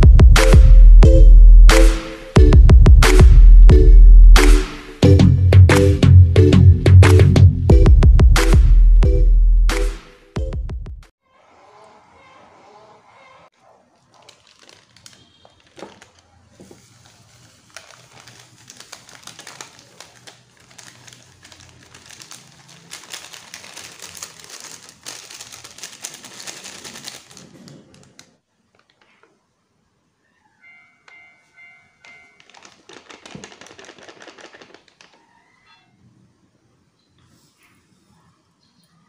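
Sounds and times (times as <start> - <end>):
foil sachets crinkling and tearing: 14.0 - 29.0, 32.2 - 35.2.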